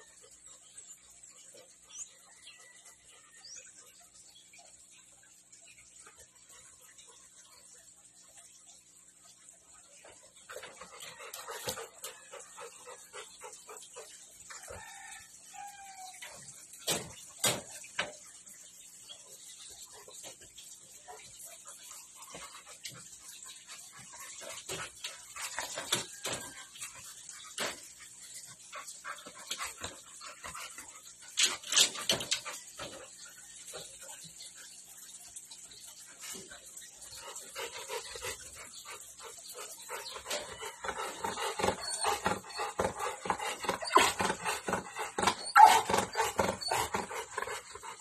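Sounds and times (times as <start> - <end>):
dog whining and panting: 10.4 - 15.4, 36.6 - 48.0
dog whining: 45.1 - 47.1.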